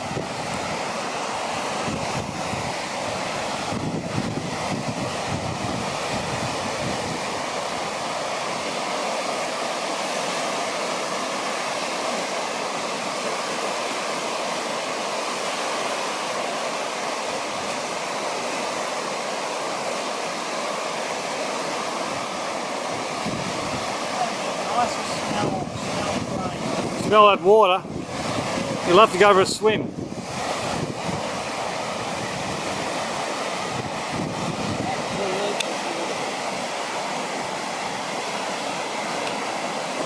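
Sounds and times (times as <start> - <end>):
wind buffeting microphone: 0.0 - 8.7, 22.1 - 35.6
floodwater rushing: 0.0 - 40.0.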